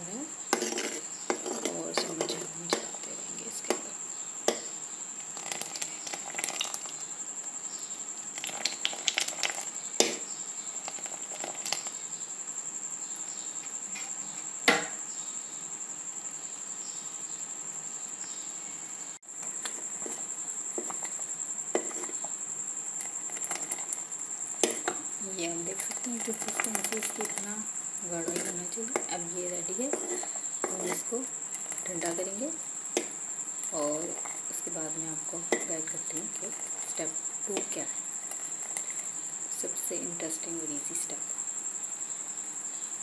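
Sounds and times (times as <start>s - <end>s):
boiling milk hissing: 0.4s - 12.0s, 19.2s - 41.3s
ladle clinking and scraping pot: 0.6s - 3.0s, 19.5s - 21.2s, 21.8s - 22.3s, 24.6s - 25.1s, 28.2s - 32.2s.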